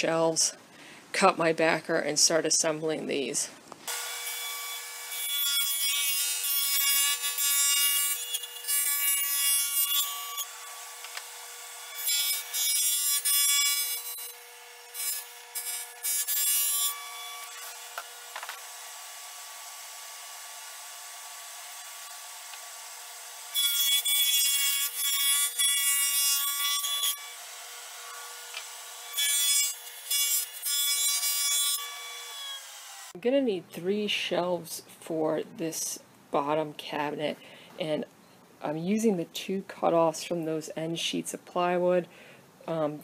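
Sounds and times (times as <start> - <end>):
table saw cutting plywood: 3.9 - 33.2.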